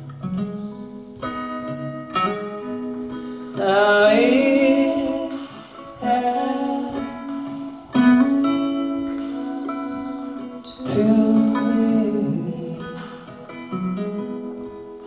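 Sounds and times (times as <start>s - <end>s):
acoustic guitar picking: 0.0s - 15.0s
person singing: 3.5s - 14.4s.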